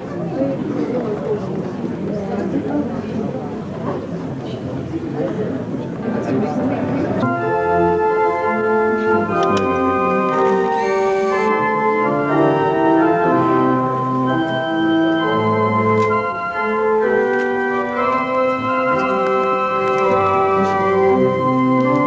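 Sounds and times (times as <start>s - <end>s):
organ music: 6.8s - 22.0s.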